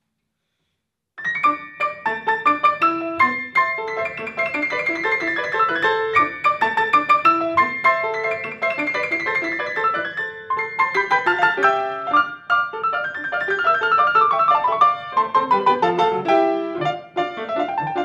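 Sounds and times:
grand piano playing fast: 1.2 - 18.0.

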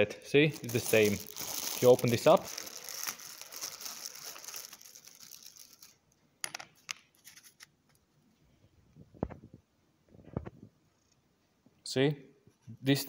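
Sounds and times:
plastic bag crinkling: 0.5 - 6.0.

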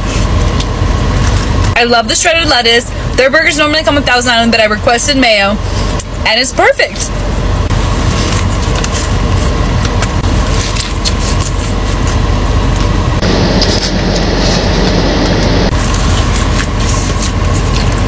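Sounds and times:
car cabin rushing and humming: 7.2 - 18.0.

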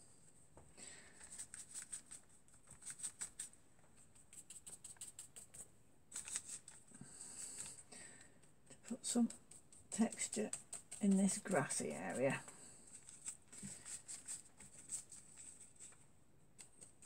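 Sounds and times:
paintbrush strokes on paper: 1.0 - 7.9, 8.8 - 17.0.

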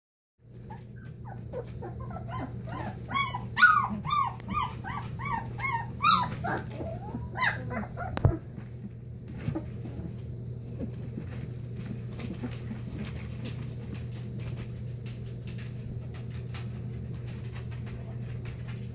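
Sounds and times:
puppies whimpering and yipping: 0.5 - 8.7.

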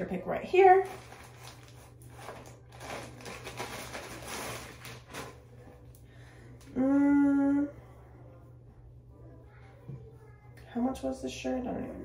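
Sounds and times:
plastic bag crinkling: 0.7 - 5.6
woman singing steady note: 6.6 - 9.6.

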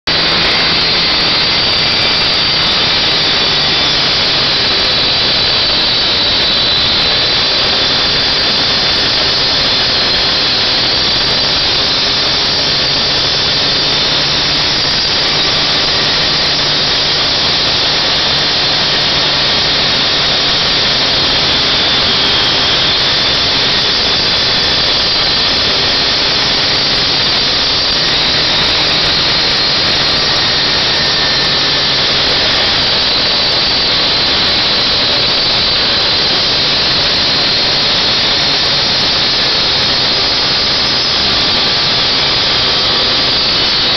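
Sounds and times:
saw engine drone: 0.0 - 43.9
saw blade grinding metal: 0.1 - 43.9.

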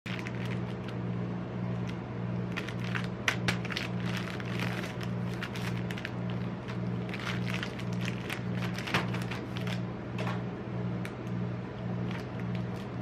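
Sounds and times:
plastic wrapper crinkling: 0.1 - 1.0, 1.8 - 9.8, 12.0 - 13.0
steady low hum: 0.1 - 13.0.

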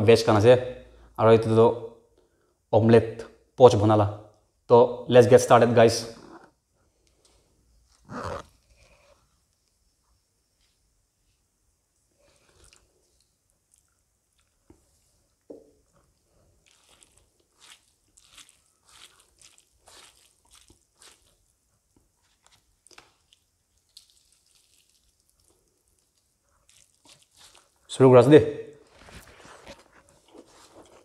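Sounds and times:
fingers mixing rice wet squishes: 15.8 - 31.0.

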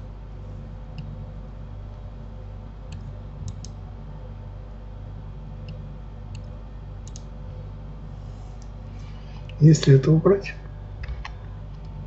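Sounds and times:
low electrical hum: 0.0 - 12.0
mouse and keyboard clicks: 5.6 - 7.3.

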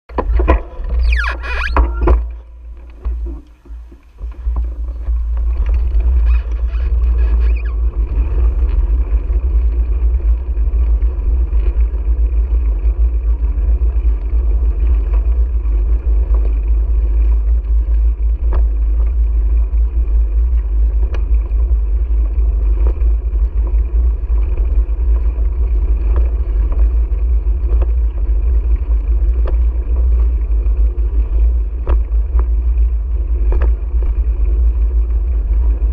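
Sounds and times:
wind rumble on microphone: 0.0 - 35.9
light ticks and rattles: 0.1 - 35.9.

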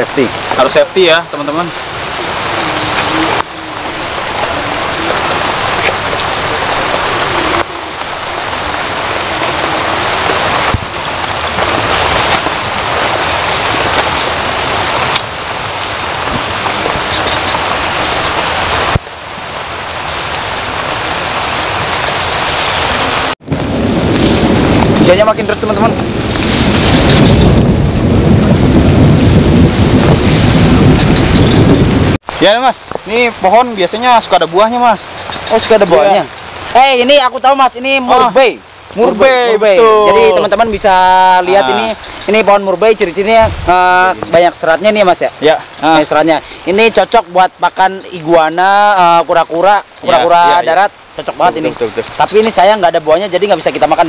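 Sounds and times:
heavy rain: 0.0 - 54.0
rustling of grass and leaves: 0.0 - 54.0
wind noise on microphone: 1.7 - 33.1, 38.9 - 45.0.

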